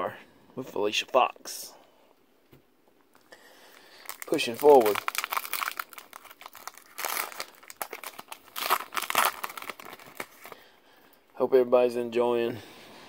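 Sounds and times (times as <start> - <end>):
foil wrapper crinkling and tearing: 3.2 - 10.6.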